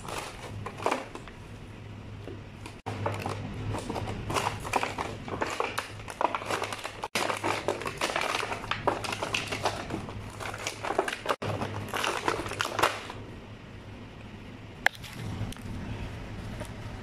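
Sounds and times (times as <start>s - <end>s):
steady low hum: 0.0s - 17.0s
plastic tray crinkling and clicking: 2.7s - 13.2s.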